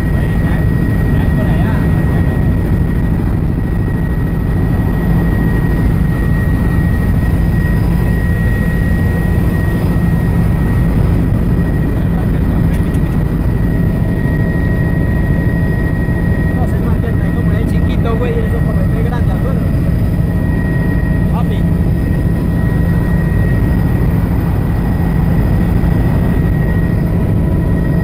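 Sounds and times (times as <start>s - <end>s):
helicopter rotor and engine drone: 0.0s - 28.0s
high-pitched whine: 0.0s - 28.0s.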